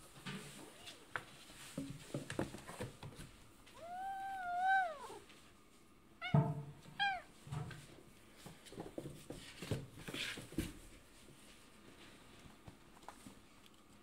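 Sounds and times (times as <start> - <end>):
soft scuffling and knocks: 0.0 - 3.9, 7.4 - 14.0
cat meowing: 3.8 - 5.2, 6.2 - 7.3.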